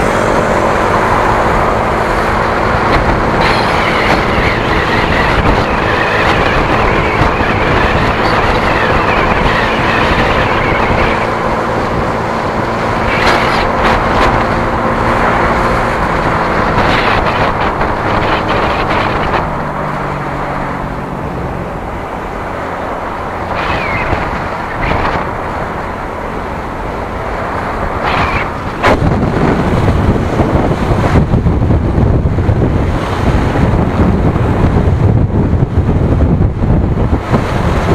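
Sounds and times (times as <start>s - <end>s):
vehicle engine running: 0.0s - 37.9s
wind and road noise: 0.0s - 37.9s.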